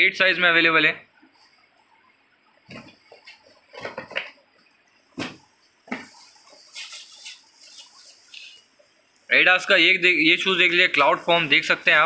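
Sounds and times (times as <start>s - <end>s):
cardboard rustling: 5.2s - 8.7s.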